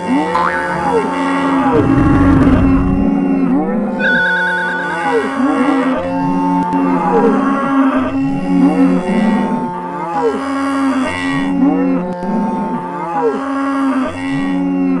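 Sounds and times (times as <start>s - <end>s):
cows mooing: 0.0s - 3.8s.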